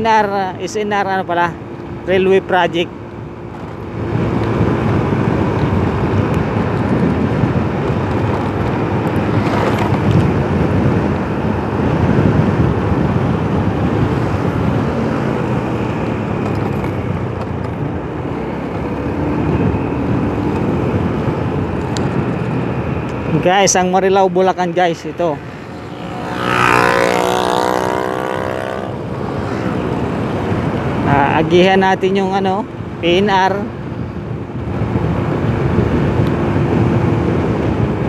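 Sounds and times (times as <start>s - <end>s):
wind and road noise: 0.0s - 38.0s
motorcycle engine running: 2.9s - 23.3s, 24.3s - 31.3s.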